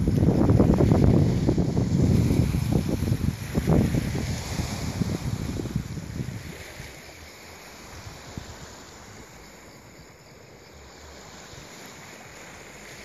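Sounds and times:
wind on microphone: 0:00.0 - 0:09.4
sea surf: 0:00.0 - 0:13.0.

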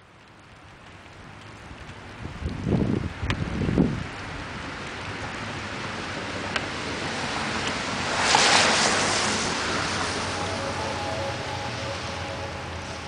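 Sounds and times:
rain falling on wet pavement: 0:00.0 - 0:13.0
loud hiss: 0:07.9 - 0:13.0.

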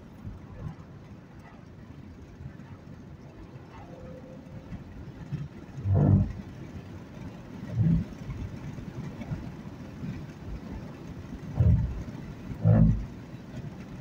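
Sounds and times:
car road and engine rumble: 0:00.0 - 0:14.0
low rushes: 0:05.8 - 0:06.6.

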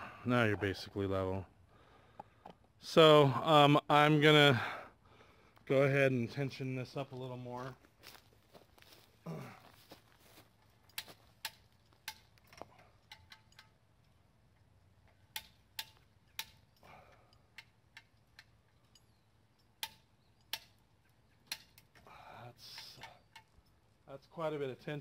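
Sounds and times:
ratchet clicking: 0:13.0 - 0:22.0.

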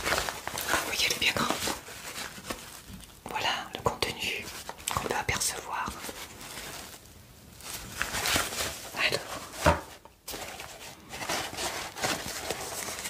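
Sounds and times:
fabric pouch rustling and tapping: 0:00.0 - 0:03.0.

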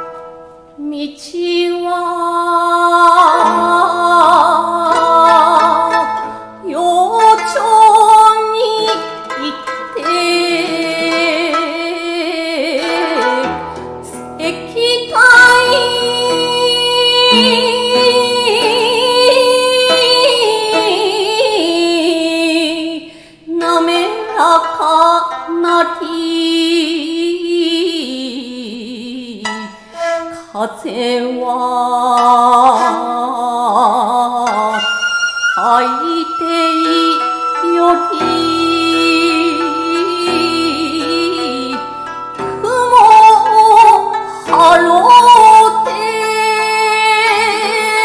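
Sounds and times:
instrumental accompaniment: 0:00.0 - 0:00.9, 0:03.0 - 0:22.2, 0:29.4 - 0:31.4, 0:34.4 - 0:48.0
woman chanting poem: 0:14.4 - 0:23.1.

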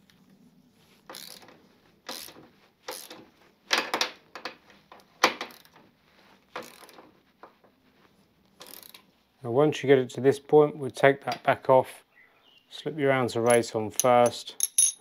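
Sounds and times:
ratchet wrench clicking: 0:01.1 - 0:01.4, 0:02.1 - 0:03.2, 0:06.6 - 0:06.9, 0:08.6 - 0:09.0.

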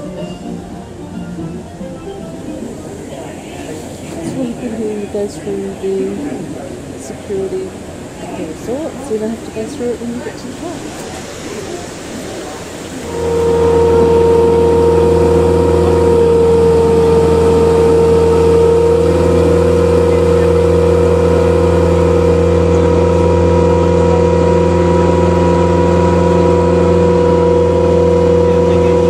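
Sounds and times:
boat engine droning: 0:00.0 - 0:29.0
steady high tone: 0:13.0 - 0:29.0.

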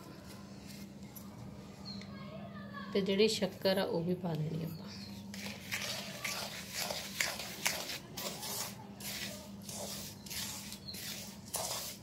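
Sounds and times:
spatula scraping dry mix in pan: 0:05.3 - 0:12.0.

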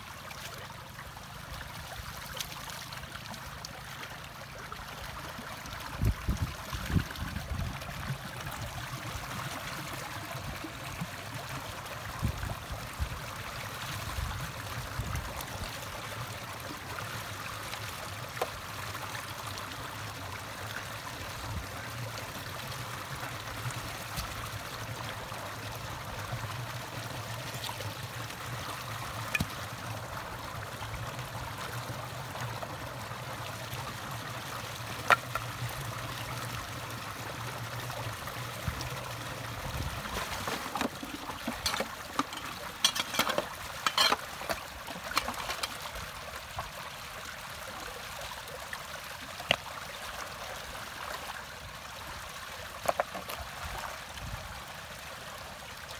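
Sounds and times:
splashes and clatters: 0:00.0 - 0:04.4, 0:22.7 - 0:30.4, 0:34.8 - 0:36.4, 0:37.7 - 0:46.7, 0:52.7 - 0:54.0
water rushing down a ditch: 0:00.0 - 0:55.9.

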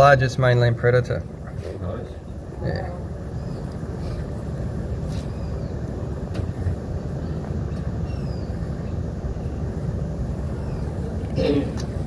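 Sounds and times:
faint bird chirps: 0:07.2 - 0:09.6, 0:10.4 - 0:11.9.

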